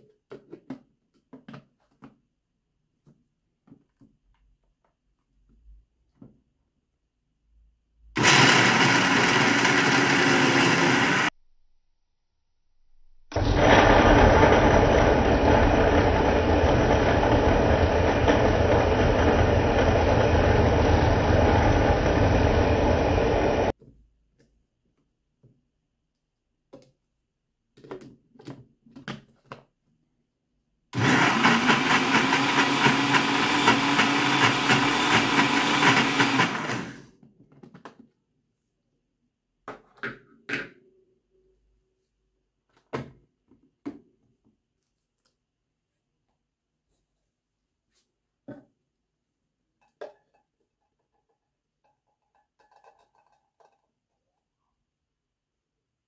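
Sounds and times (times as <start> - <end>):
blender running: 8.2 - 11.3, 13.3 - 23.7, 31.0 - 37.1.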